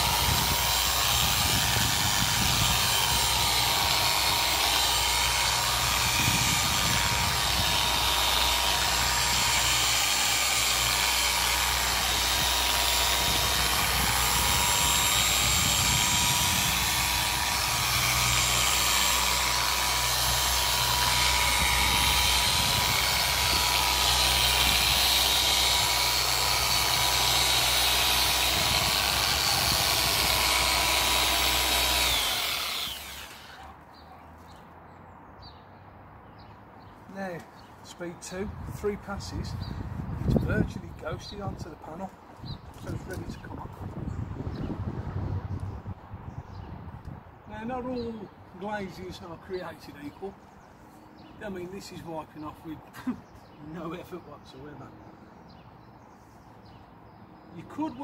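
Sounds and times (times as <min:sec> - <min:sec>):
electric car polisher running: 0:00.0 - 0:33.6
polisher winding down whine: 0:20.8 - 0:33.6.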